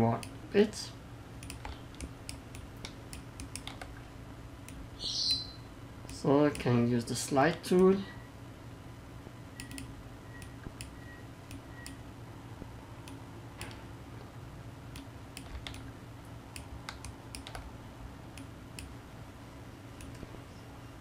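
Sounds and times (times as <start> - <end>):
low steady hum: 0.0 - 21.0
mouse and keyboard clicks: 1.4 - 4.0, 16.6 - 17.7.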